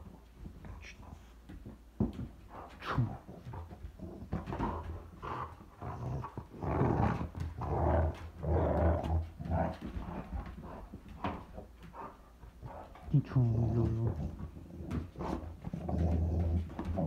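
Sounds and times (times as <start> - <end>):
dog growling: 2.8 - 11.4, 12.0 - 17.0.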